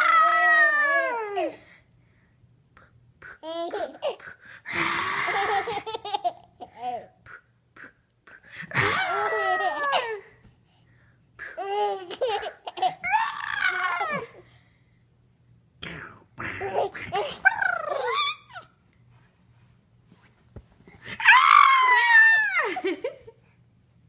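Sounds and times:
baby laughing: 3.4s - 4.2s, 5.1s - 7.2s, 9.1s - 10.3s, 11.5s - 14.4s, 16.6s - 18.7s.

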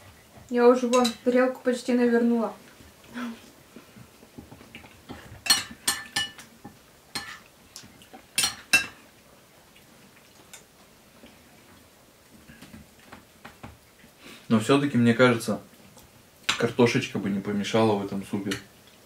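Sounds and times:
metal spoons clinking on plates: 5.4s - 6.5s, 8.4s - 9.0s.

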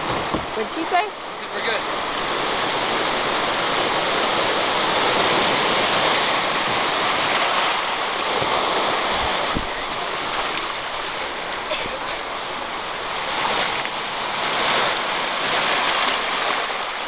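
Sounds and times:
surf washing over cobblestones: 0.0s - 17.0s
low bumps: 8.2s - 14.0s.

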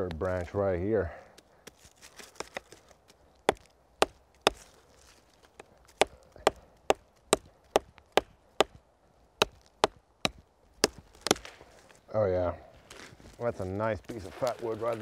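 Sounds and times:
knife chopping wood: 1.3s - 8.8s, 9.4s - 11.6s.

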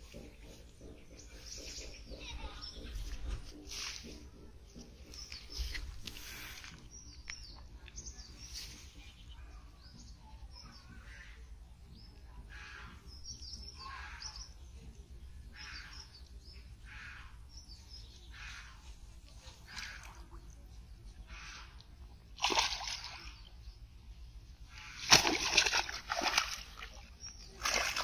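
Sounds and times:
small birds chirping: 0.0s - 28.0s
water swishing: 24.7s - 28.0s.

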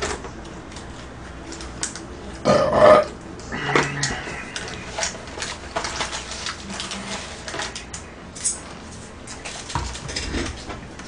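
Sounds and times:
food packaging crackling: 4.1s - 10.7s.

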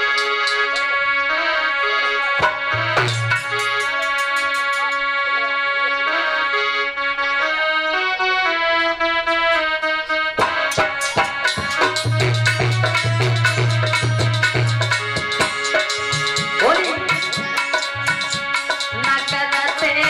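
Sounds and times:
dholak drum beat: 0.0s - 1.1s, 2.2s - 5.1s, 10.4s - 20.0s
harmonium melody: 0.0s - 20.0s.

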